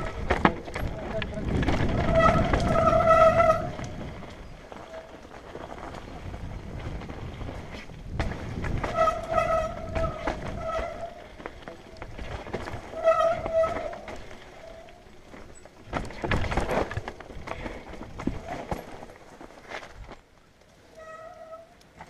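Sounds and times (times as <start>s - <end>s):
bike knocking over bumps: 0.0s - 20.2s
bike tyres rattling on dirt: 0.0s - 22.0s
disc brakes squealing: 1.8s - 5.0s, 8.8s - 11.4s, 12.8s - 15.8s.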